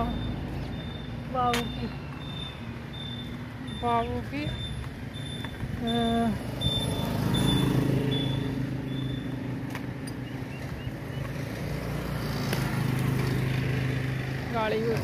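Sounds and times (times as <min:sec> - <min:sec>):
short high-pitched beeps: 0:00.0 - 0:09.4.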